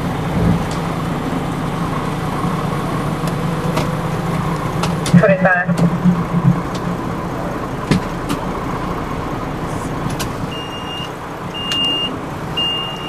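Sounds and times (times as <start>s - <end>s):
diesel engine running: 0.0s - 13.0s
reversing alarm beeping: 10.1s - 13.0s.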